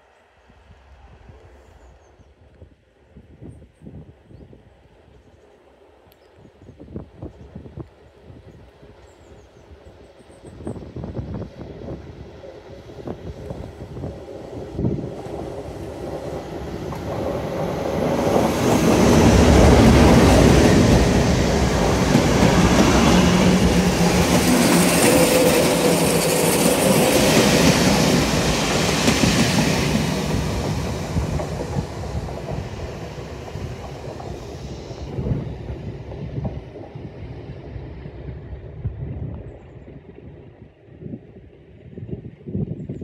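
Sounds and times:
diesel locomotive engine passing: 9.7s - 42.4s.

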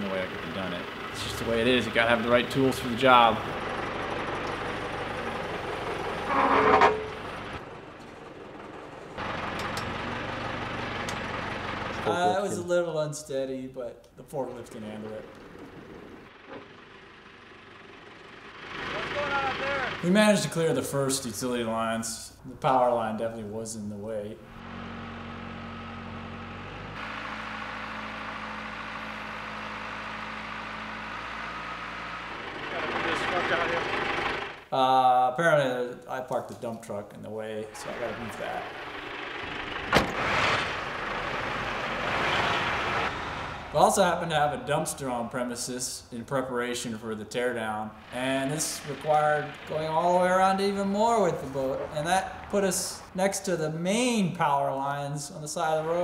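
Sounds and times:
forklift engine running: 0.0s - 12.6s, 15.3s - 20.3s, 24.4s - 34.7s, 37.7s - 43.8s, 47.9s - 52.6s
outdoor ambience: 0.0s - 56.0s
loud squeal: 6.2s - 7.2s.

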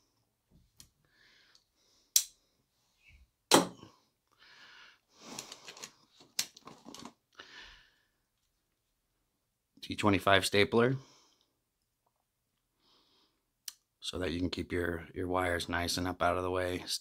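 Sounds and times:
rummaging in a tool bag: 5.2s - 7.2s.

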